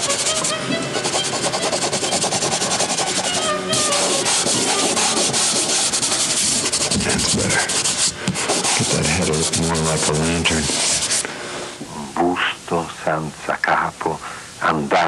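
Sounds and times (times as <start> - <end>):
hand rubbing scratchily: 0.0 - 11.3.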